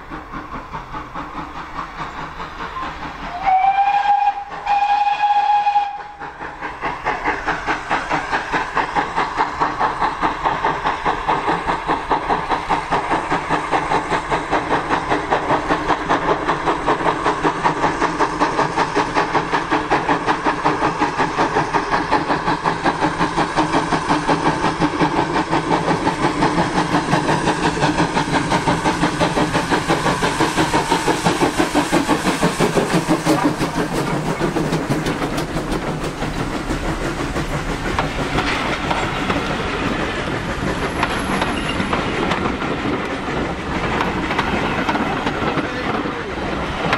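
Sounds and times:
steam locomotive exhaust beats: 0.0 - 46.9
steam whistle: 3.3 - 6.2.

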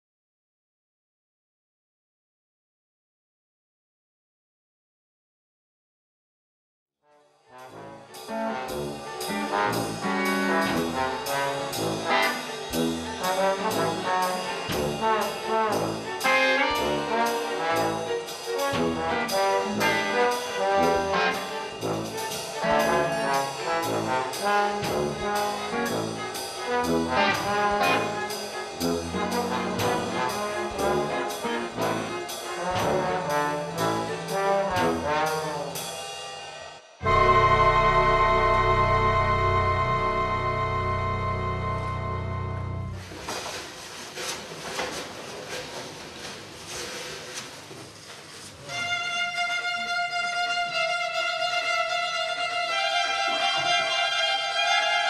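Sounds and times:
orchestra with brass: 7.4 - 36.1, 37.0 - 44.4
percussion hits: 7.5 - 36.1.

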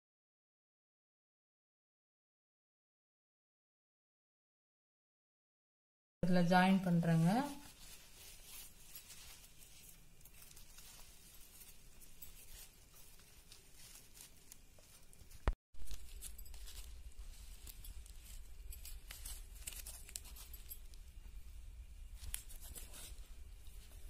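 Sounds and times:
dry fibre rustling and crinkling: 6.2 - 24.0.

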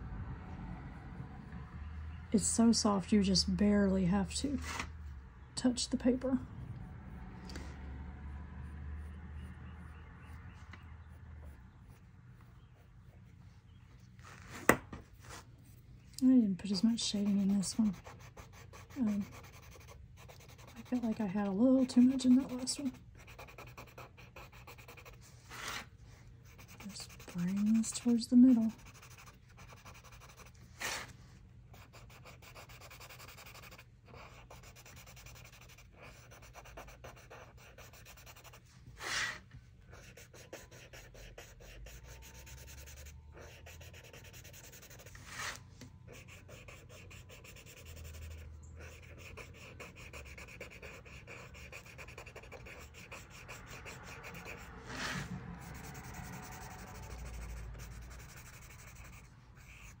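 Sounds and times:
louder scuffs on paper: 45.2 - 45.8.

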